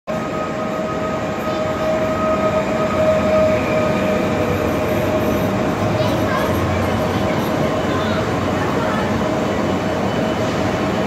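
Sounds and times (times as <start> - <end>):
train whine: 0.1 - 11.0
train wheels rumbling: 0.2 - 11.0.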